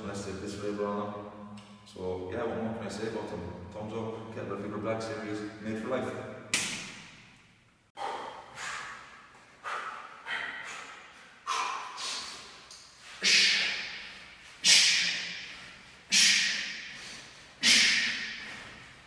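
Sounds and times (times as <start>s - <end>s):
man exhaling forcefully with grunts: 13.2s - 18.8s.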